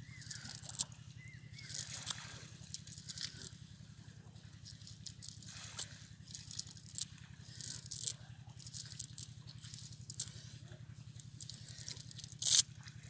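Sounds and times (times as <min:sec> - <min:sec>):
steady low hum: 0:00.0 - 0:13.0
net weights rattling and clicking: 0:00.2 - 0:00.9, 0:01.6 - 0:03.5, 0:04.6 - 0:10.3, 0:11.4 - 0:12.6.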